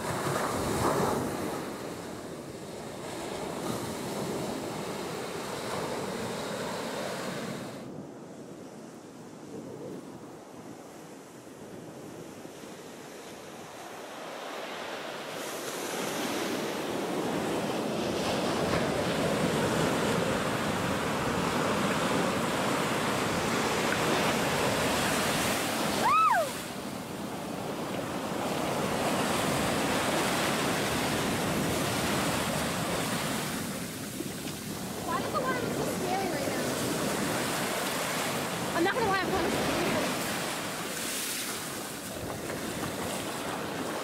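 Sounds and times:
ocean surf breaking: 0.0s - 8.0s, 12.8s - 44.0s
high rising call: 26.0s - 26.6s.

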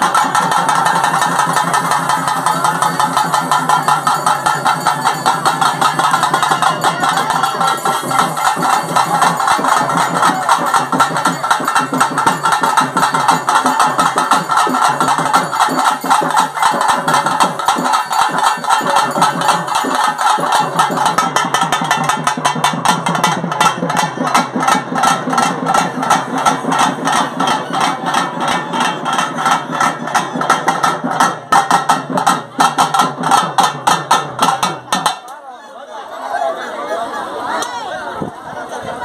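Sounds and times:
fast loud drumming: 0.0s - 35.3s.

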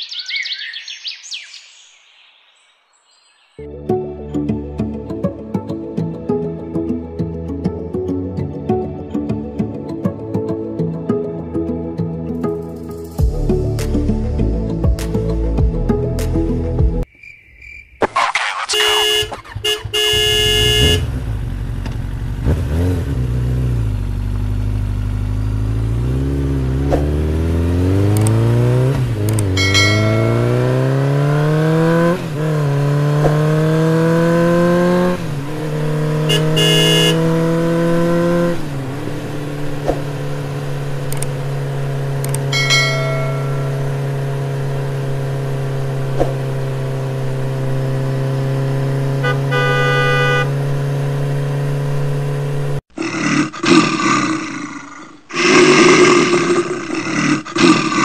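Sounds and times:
short horn beeps: 18.7s - 21.1s, 36.3s - 37.3s, 49.2s - 50.7s
motorcycle engine accelerating: 19.0s - 52.9s.

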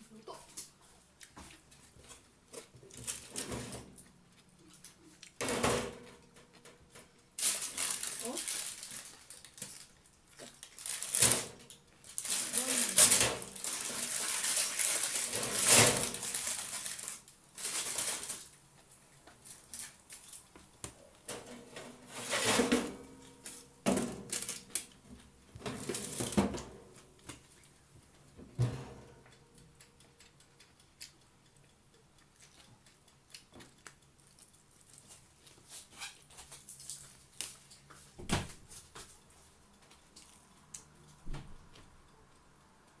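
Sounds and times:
vegetables clicking and rustling: 0.4s - 31.2s, 32.3s - 41.9s
person chewing and smacking: 0.6s - 3.1s, 4.0s - 5.4s, 29.2s - 38.1s, 39.7s - 41.2s.

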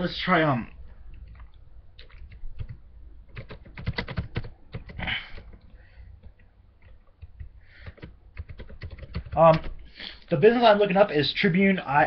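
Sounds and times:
keyboard typing: 1.1s - 9.8s.

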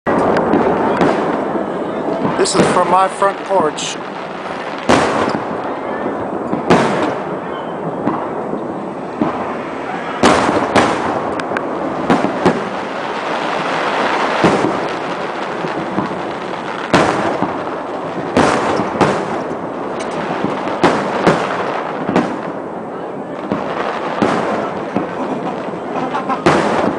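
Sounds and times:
continuous fireworks display noise: 0.0s - 26.9s
fireworks shells bursting: 2.1s - 5.7s, 6.4s - 22.6s.

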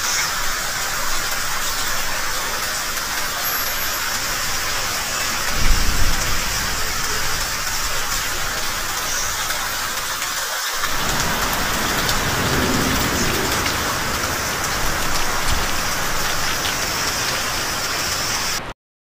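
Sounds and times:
rain pouring on roofs: 0.0s - 18.8s
low rumble: 10.8s - 17.9s.

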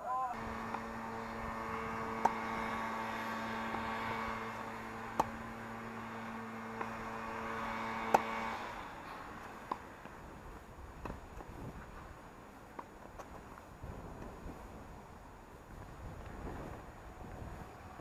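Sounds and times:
steady hum: 0.0s - 18.0s
tennis ball struck by rackets: 2.1s - 5.5s, 6.7s - 8.4s, 9.4s - 10.2s, 12.7s - 12.9s.

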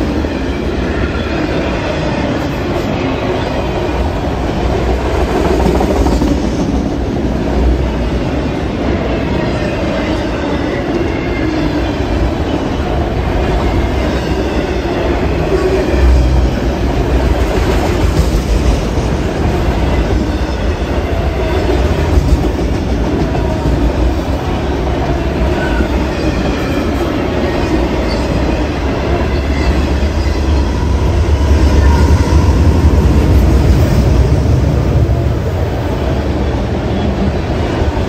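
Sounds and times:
train wheels rumbling on rails: 0.0s - 38.0s.

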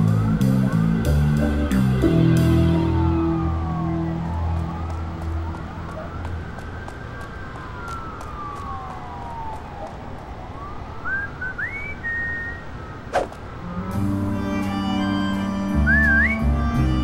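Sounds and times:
city night noise: 0.0s - 17.0s
distant siren wailing: 0.0s - 17.0s
rising whistled notes: 11.0s - 13.3s, 15.8s - 16.5s.

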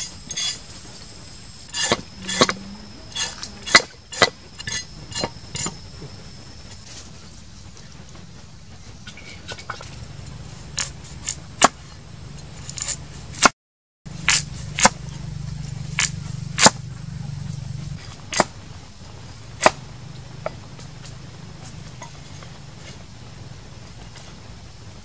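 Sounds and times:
cleaver chopping on wooden block: 14.2s - 15.0s, 16.0s - 16.8s, 19.6s - 19.8s.

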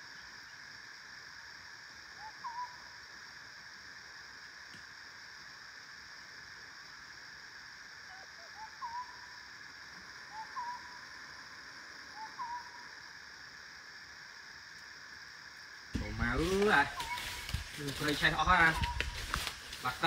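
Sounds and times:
soft hooting calls: 8.1s - 9.3s, 10.2s - 11.3s, 12.0s - 13.0s, 16.0s - 19.4s.

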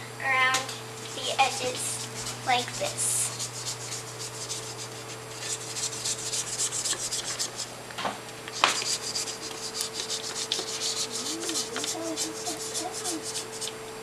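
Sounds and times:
spatula scraping metal bowl: 8.7s - 13.7s.

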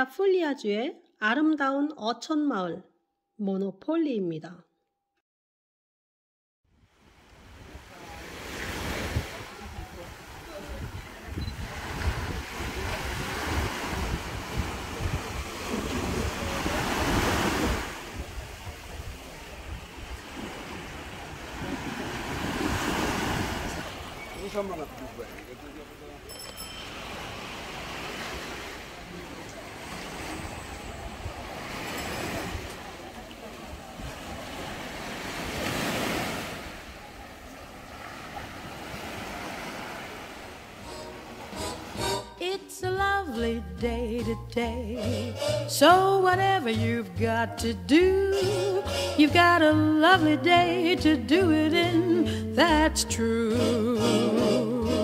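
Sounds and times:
small waves breaking on beach: 6.9s - 42.0s
wind buffeting microphone: 9.0s - 24.3s.

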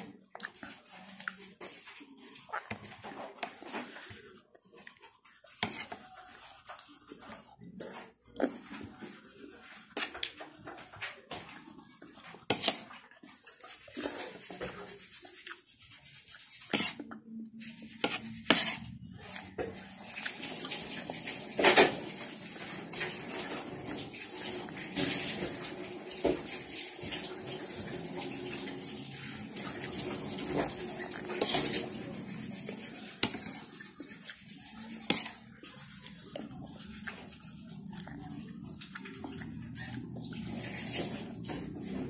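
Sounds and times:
cutlery scraping a plate: 5.5s - 6.4s, 9.8s - 11.4s, 12.2s - 13.0s, 16.1s - 22.2s, 29.5s - 37.4s
chewing sounds: 29.3s - 42.0s.

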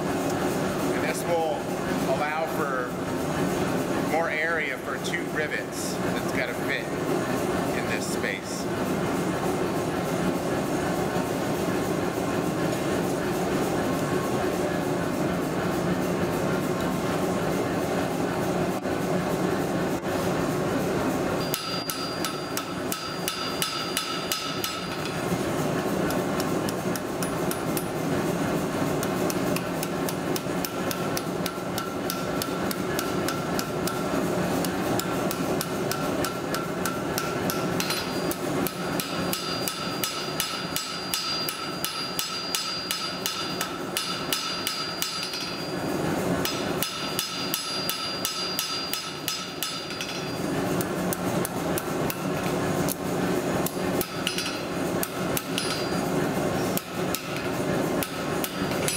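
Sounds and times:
gas forge burner rushing: 0.0s - 58.9s
anvil ringing: 21.4s - 25.1s, 35.9s - 50.5s, 54.0s - 54.7s, 55.4s - 56.1s
hammer striking steel on anvil: 21.4s - 25.2s, 29.6s - 34.0s, 34.6s - 45.7s, 46.4s - 50.5s, 53.6s - 56.1s, 56.8s - 58.9s.

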